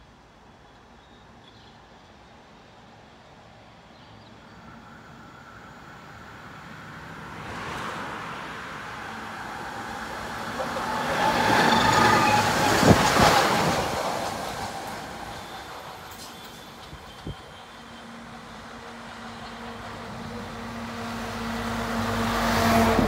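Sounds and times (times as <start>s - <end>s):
tram passing: 2.2s - 23.0s
high tram motor whine: 9.0s - 23.0s.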